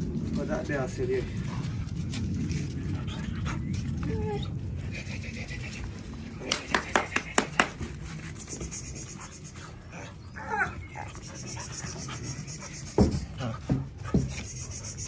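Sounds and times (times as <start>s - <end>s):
puppy whining: 3.2s - 6.1s, 8.2s - 15.0s.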